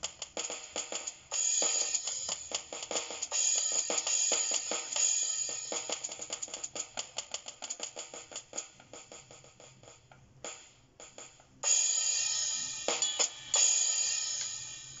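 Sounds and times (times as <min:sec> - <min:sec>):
electronic hi-hat strokes: 0:00.0 - 0:15.0
electronic cymbal crashes: 0:11.6 - 0:15.0.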